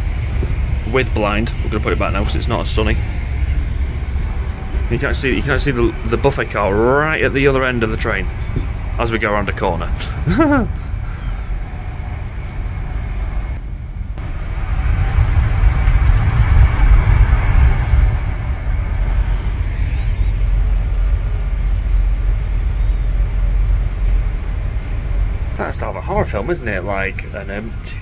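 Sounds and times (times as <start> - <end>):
train wheels rumbling on rail: 0.0 - 28.0.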